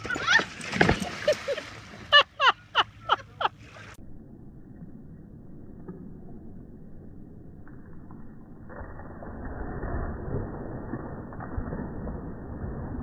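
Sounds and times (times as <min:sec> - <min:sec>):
faint outdoor background: 0:00.0 - 0:09.2
person laughing: 0:01.1 - 0:03.6.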